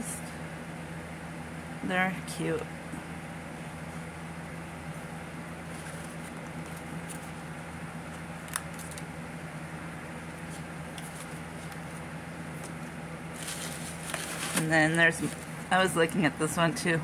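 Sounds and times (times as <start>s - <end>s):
steady low hum: 0.0s - 17.0s
paper cards being flipped: 5.7s - 7.4s, 8.0s - 9.1s, 10.3s - 15.5s.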